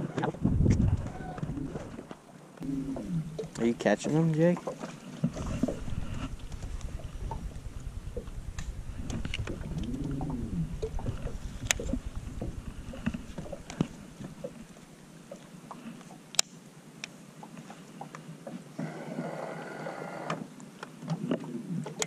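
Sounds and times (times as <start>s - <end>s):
waves slapping boat hull: 0.0s - 16.4s
rising and falling tone: 5.4s - 14.6s.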